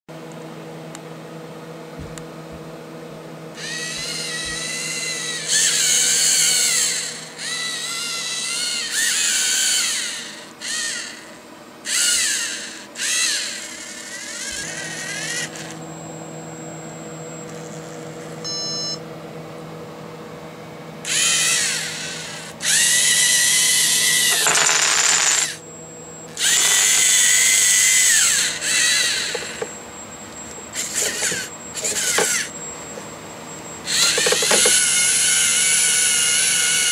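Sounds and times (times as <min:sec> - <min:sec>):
low electrical hum: 0:00.1 - 0:36.9
robot motors whining: 0:03.6 - 0:15.9, 0:17.3 - 0:19.0, 0:21.0 - 0:25.6, 0:26.3 - 0:29.8, 0:30.4 - 0:33.1, 0:33.8 - 0:36.9.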